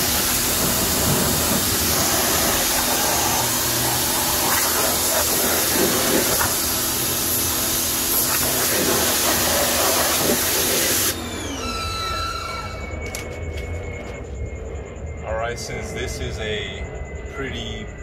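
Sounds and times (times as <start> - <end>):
pressure washer spraying: 0.0 - 11.2
falling whine: 0.0 - 18.0.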